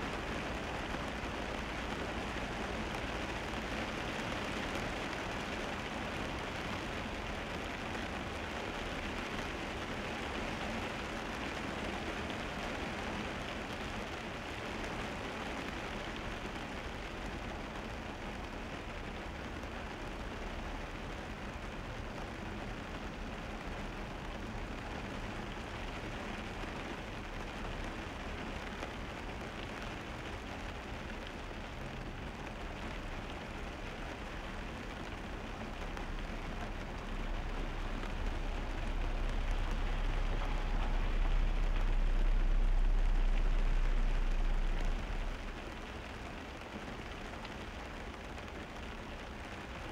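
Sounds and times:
rain and tyres hissing on wet road: 0.0s - 49.9s
low road rumble: 16.2s - 49.9s.

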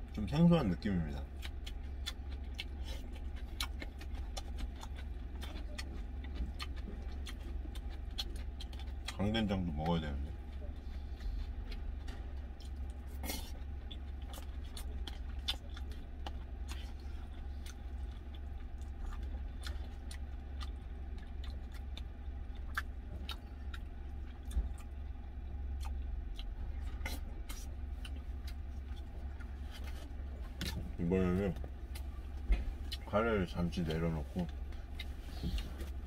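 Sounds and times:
chewing: 0.0s - 36.0s
steady low hum: 0.0s - 36.0s.

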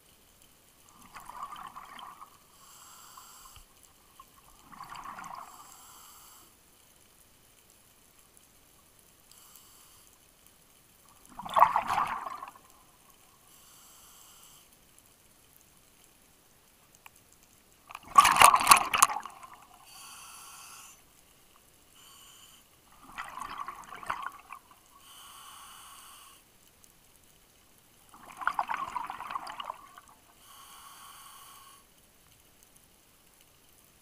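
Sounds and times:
exhaled bubbles burbling: 0.9s - 2.4s, 4.2s - 5.6s, 11.2s - 12.8s, 17.9s - 19.8s, 22.9s - 24.8s, 28.1s - 30.2s
regulator inhalation hiss: 2.5s - 3.7s, 5.5s - 6.5s, 13.4s - 14.7s, 19.8s - 21.0s, 22.0s - 22.7s, 25.0s - 26.5s, 30.4s - 31.9s.

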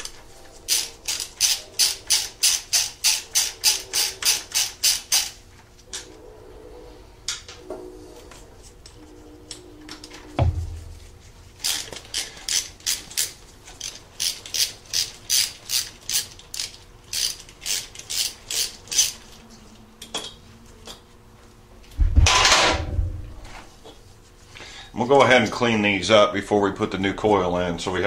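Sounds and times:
socket ratchet clicking: 0.7s - 5.4s, 11.6s - 19.2s.

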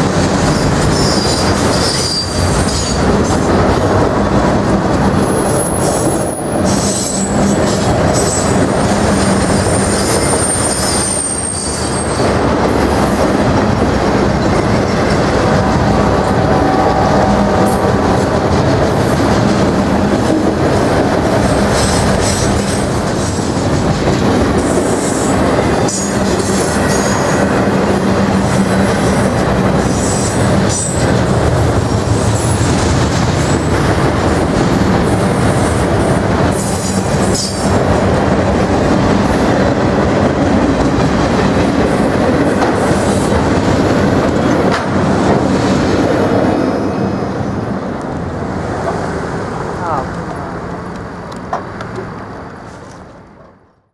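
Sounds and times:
steel wheels rumbling on rail: 0.0s - 53.8s
high-pitched wheel squeals: 0.6s - 3.0s, 9.6s - 12.2s.

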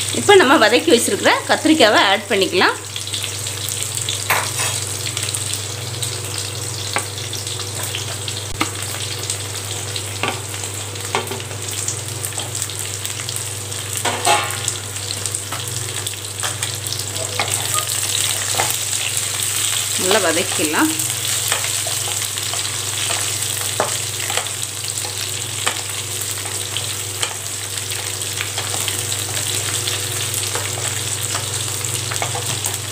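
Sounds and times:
food sizzling in oil: 0.0s - 32.9s.

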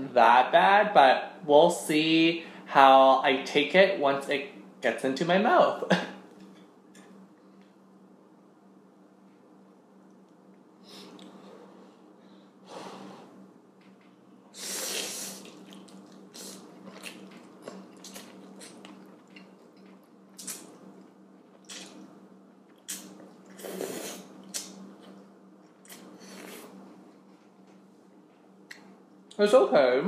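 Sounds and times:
person slurping noodles: 14.6s - 17.1s, 23.5s - 24.3s.

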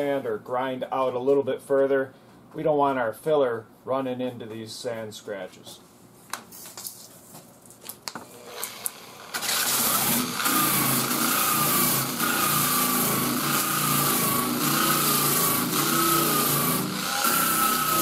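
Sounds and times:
electric sander grinding paint: 9.5s - 18.0s.

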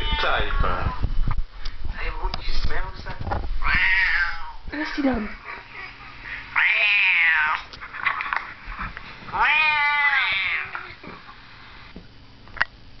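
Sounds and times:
cat meowing: 0.0s - 1.0s, 3.6s - 4.6s, 6.6s - 7.7s, 9.3s - 11.2s.

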